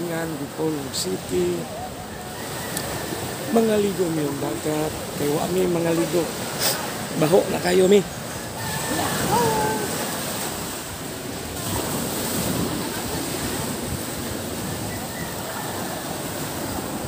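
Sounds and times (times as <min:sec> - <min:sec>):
surf breaking on beach: 0:00.0 - 0:17.0
wind buffeting microphone: 0:01.2 - 0:17.0.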